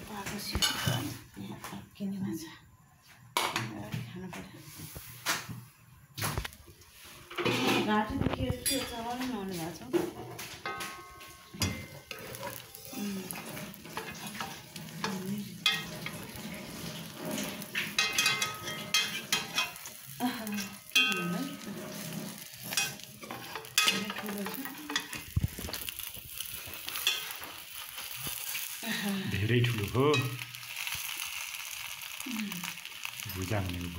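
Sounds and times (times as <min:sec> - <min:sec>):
omelet sizzling in a pan: 0:00.0 - 0:02.2, 0:04.6 - 0:33.9
spatula scraping and tapping pan: 0:00.2 - 0:01.8, 0:07.2 - 0:28.7, 0:29.8 - 0:31.3.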